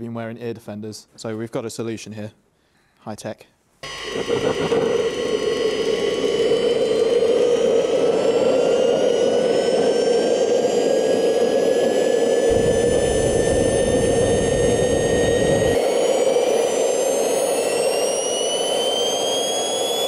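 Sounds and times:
heavy low rumble: 0:03.8 - 0:17.8
jet engine roar with turbine whine: 0:03.8 - 0:20.0.

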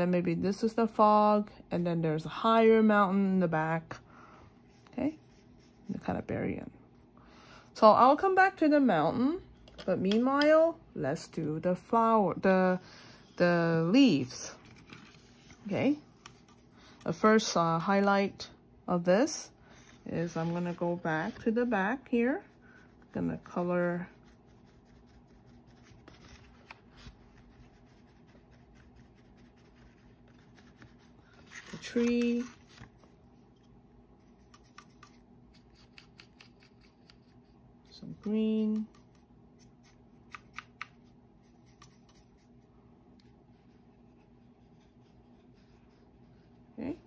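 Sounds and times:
brush dabbing on paper: 0:19.8 - 0:31.4, 0:34.2 - 0:42.7, 0:43.4 - 0:46.8.

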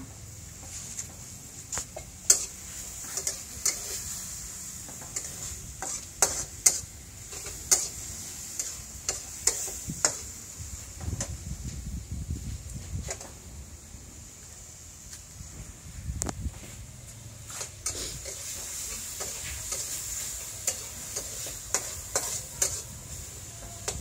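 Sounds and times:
food sizzling in oil: 0:00.4 - 0:15.2, 0:17.4 - 0:24.0
ladle scraping a wok: 0:00.6 - 0:11.8, 0:17.4 - 0:24.0.

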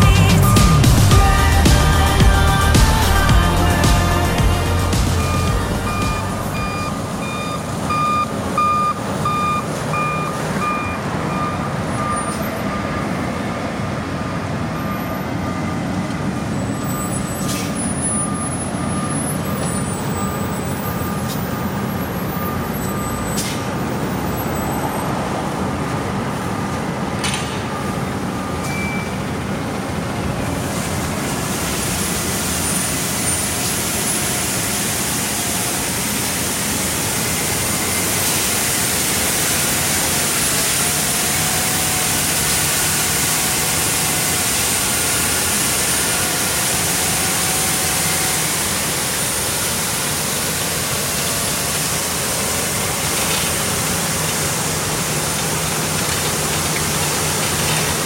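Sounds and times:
high hiss: 0:00.0 - 0:07.2, 0:30.7 - 0:58.0
backup alarm beeping: 0:00.0 - 0:13.2, 0:16.8 - 0:23.4, 0:27.8 - 0:29.3
diesel road machinery running: 0:00.0 - 0:58.0.

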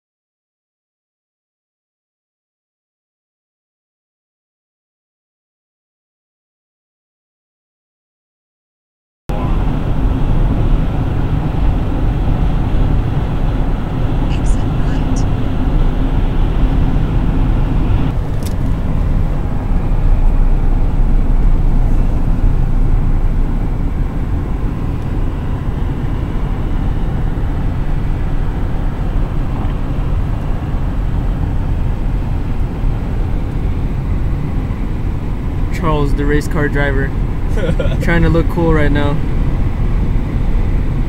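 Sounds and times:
car cabin road noise: 0:09.3 - 0:41.0.

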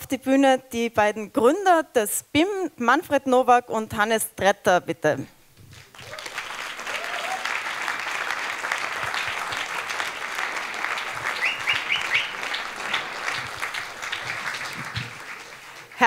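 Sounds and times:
audience applauding: 0:05.7 - 0:16.0.

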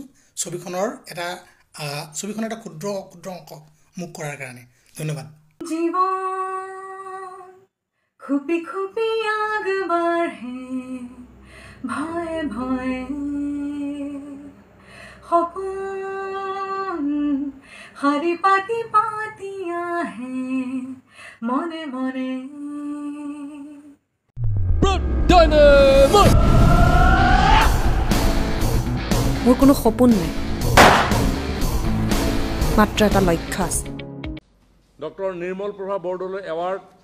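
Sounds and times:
woman singing unaccompanied: 0:05.6 - 0:14.6, 0:15.2 - 0:24.0.

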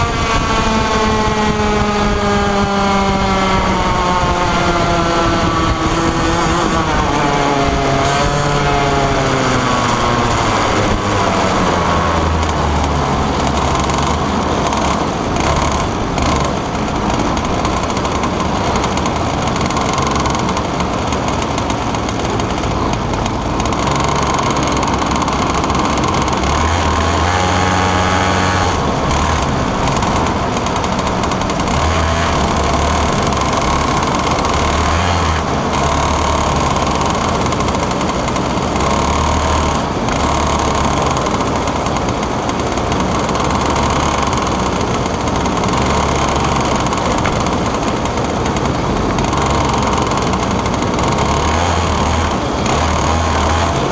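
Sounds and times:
kart engine at racing speed: 0:00.0 - 0:53.9.

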